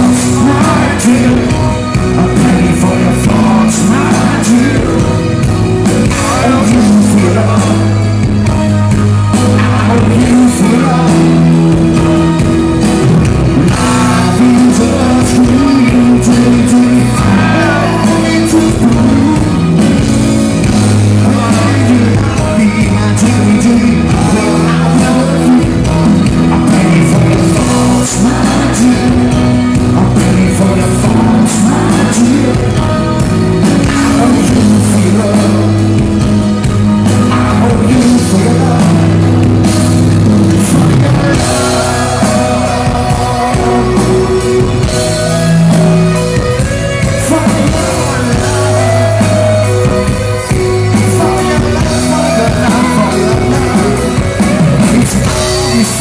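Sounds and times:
live rock band: 0:00.0 - 0:56.0
man singing: 0:00.0 - 0:56.0.

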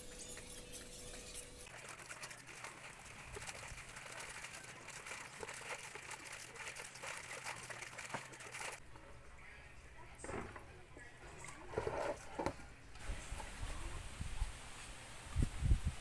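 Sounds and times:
clothes scrubbed in water: 0:01.2 - 0:08.8
water splashing and squelching: 0:01.6 - 0:08.8.

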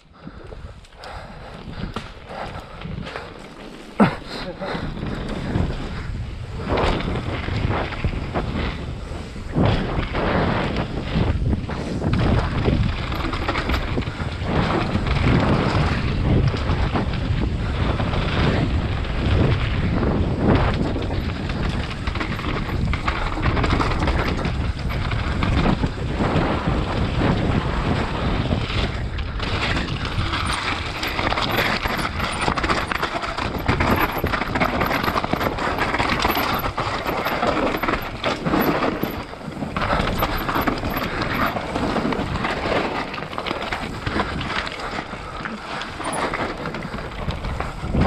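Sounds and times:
bike rattling: 0:00.0 - 0:48.0
wind rushing over microphone: 0:00.0 - 0:48.0
tyres crunching over stones: 0:29.4 - 0:48.0.

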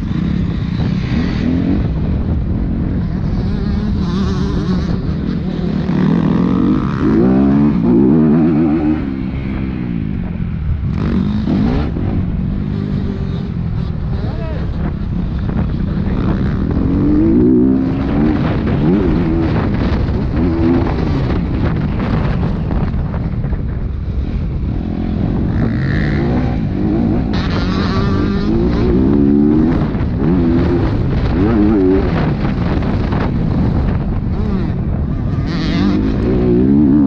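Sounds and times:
dirt bike engine revving: 0:00.0 - 0:23.3, 0:24.1 - 0:37.0
steady rushing noise: 0:00.0 - 0:37.0.

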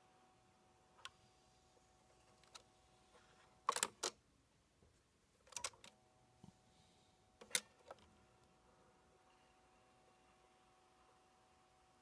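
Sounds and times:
turntable mechanism clicking: 0:03.6 - 0:04.2, 0:07.4 - 0:08.0.

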